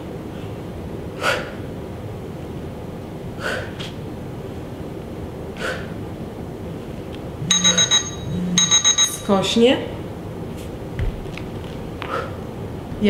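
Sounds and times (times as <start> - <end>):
woman exhaling forcefully: 1.2 - 1.6, 3.4 - 3.9, 5.6 - 6.0
electronic beeping: 7.4 - 9.3.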